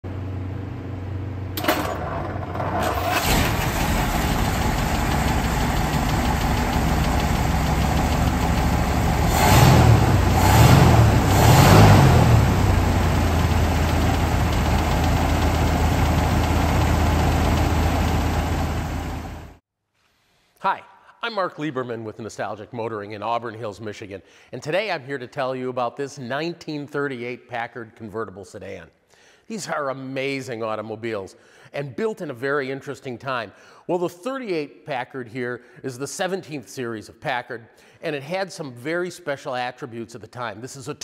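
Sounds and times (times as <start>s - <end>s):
engine starting and idling: 1.6s - 19.6s
engine revving: 1.7s - 19.6s.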